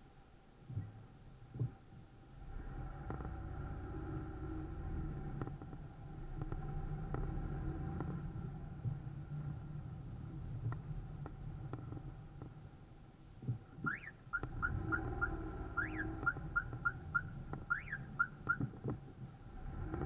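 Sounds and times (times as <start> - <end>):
car driving slowly: 0.0 - 20.0
rising-and-falling whistle: 13.9 - 18.4.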